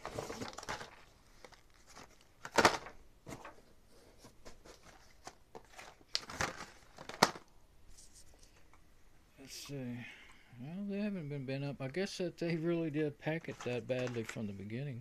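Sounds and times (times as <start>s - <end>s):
blister packs clicking and rustling: 0.0s - 3.5s, 4.7s - 7.5s.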